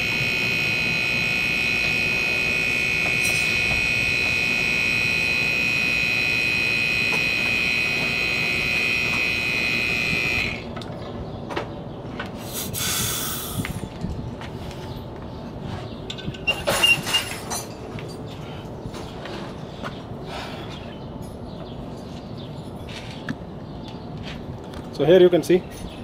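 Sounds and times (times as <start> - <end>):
air compressor whining: 0.0 - 10.8
short air hiss: 12.4 - 13.7.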